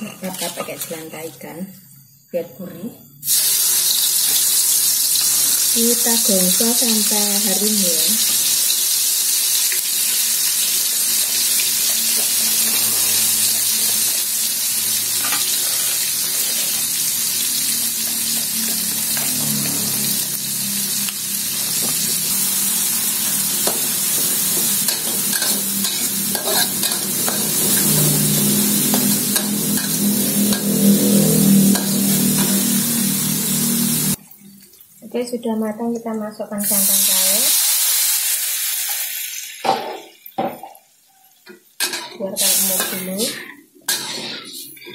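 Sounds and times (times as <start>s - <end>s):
spatula scraping a wok: 0.0s - 1.2s, 15.1s - 17.1s, 20.9s - 34.1s, 41.8s - 44.9s
spice paste sizzling in oil: 3.2s - 34.2s, 36.6s - 39.6s, 42.4s - 43.4s.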